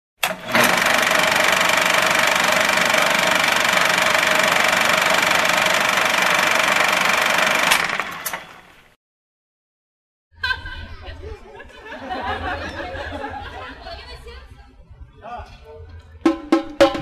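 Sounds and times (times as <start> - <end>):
film projector running: 0.2 - 8.8.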